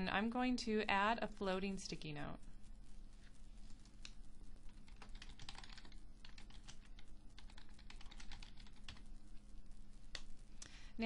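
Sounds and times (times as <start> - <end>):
faint steady hum: 0.0 - 11.0
keyboard typing: 3.7 - 9.0.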